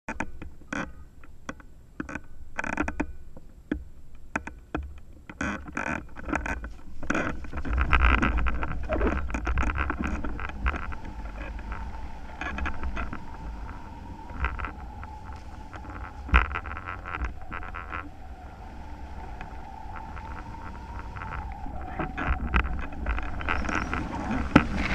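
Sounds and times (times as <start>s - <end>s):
wind rushing over microphone: 6.2s - 24.9s
steady tone: 7.6s - 24.9s.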